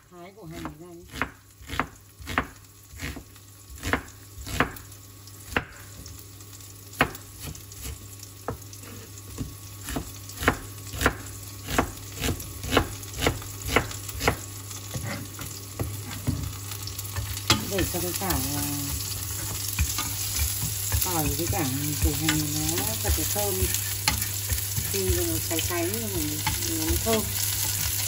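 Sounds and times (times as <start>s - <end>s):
oil sizzling in a pan: 0.0s - 28.0s.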